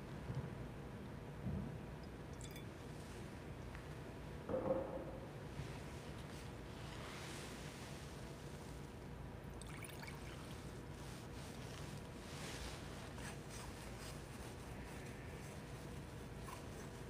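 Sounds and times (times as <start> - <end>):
low room hum: 0.0 - 17.0
soft wiping of metal vessels: 5.5 - 9.1, 10.1 - 17.0.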